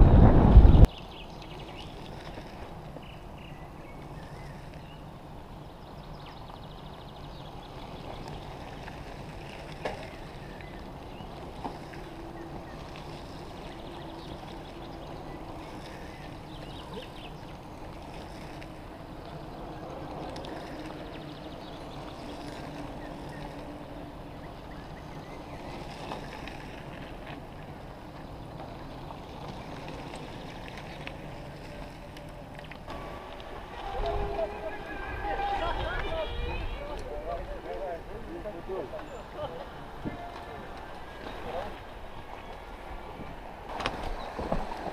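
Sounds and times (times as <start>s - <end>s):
bicycles rolling on dirt road: 0.0s - 44.9s.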